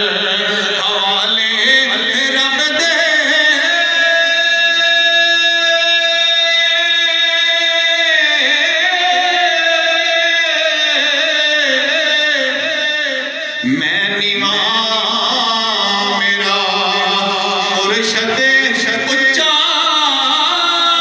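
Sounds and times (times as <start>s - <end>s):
man singing devotional chant: 0.0s - 21.0s.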